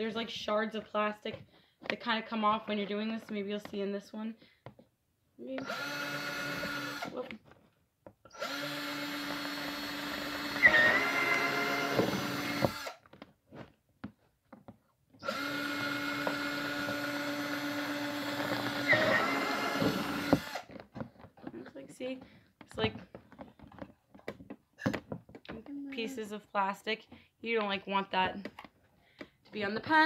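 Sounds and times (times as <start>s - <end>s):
power drill boring through plastic: 5.6s - 7.4s, 8.3s - 13.2s, 15.2s - 21.3s.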